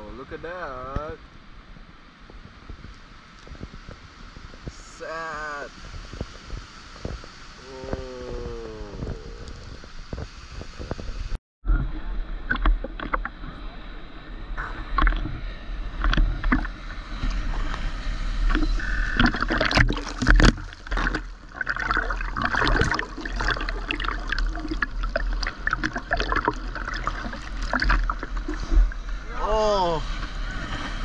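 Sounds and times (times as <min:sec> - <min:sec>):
water gurgles: 0:11.8 - 0:17.7, 0:18.4 - 0:30.7
water sloshing and splashing: 0:12.2 - 0:13.5, 0:14.6 - 0:31.0.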